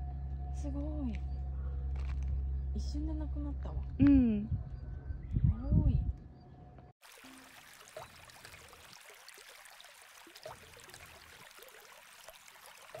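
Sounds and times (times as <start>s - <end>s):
faint trickling water: 7.0s - 13.0s.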